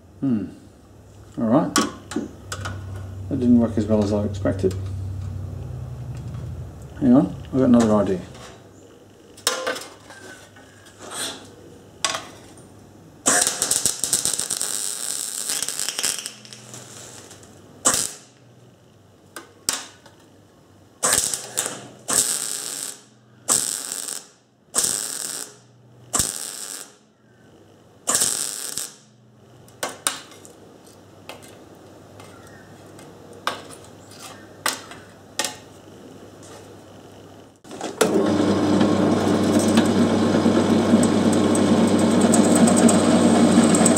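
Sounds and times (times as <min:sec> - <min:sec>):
welder crackling bursts: 0:13.2 - 0:18.4, 0:21.0 - 0:27.1, 0:28.0 - 0:29.2, 0:37.7 - 0:43.9
drill press humming: 0:37.7 - 0:43.9.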